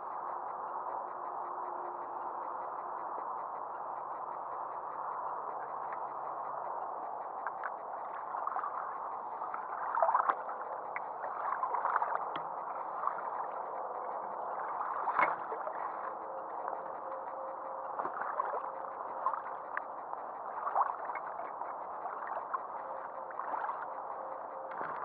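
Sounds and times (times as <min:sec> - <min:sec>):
water lapping and gurgling: 0:07.4 - 0:16.3, 0:17.4 - 0:25.0.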